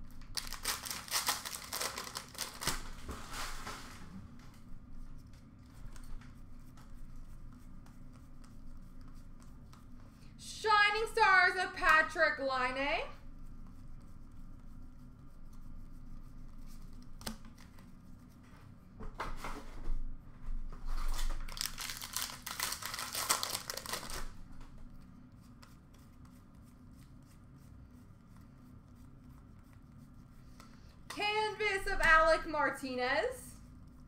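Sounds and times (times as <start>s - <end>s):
plastic wrapper tearing and crinkling: 0.2s - 3.1s, 21.1s - 24.4s
cards handled with light clicks: 16.9s - 17.9s.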